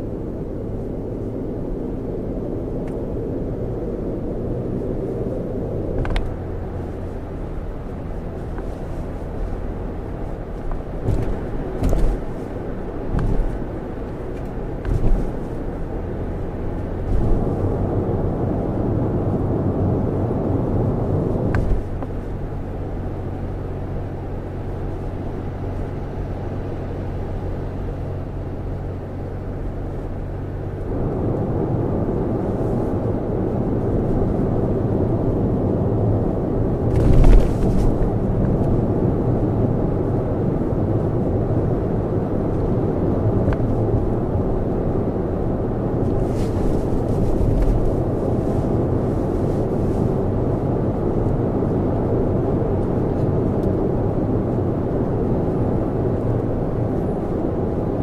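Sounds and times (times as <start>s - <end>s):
tyre rumble on road: 4.6s - 18.9s, 19.9s - 23.4s, 32.2s - 39.7s, 42.4s - 53.6s.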